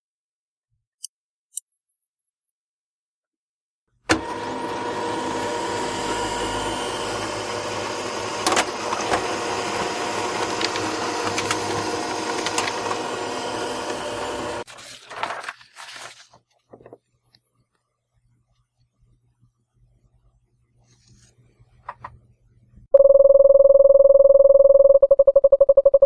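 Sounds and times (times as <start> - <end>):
printer motor and rollers running: 4.1 - 14.6
paper rustling: 9.8 - 13.0, 14.7 - 17.4, 20.8 - 22.0
printer clicks: 10.4 - 13.0.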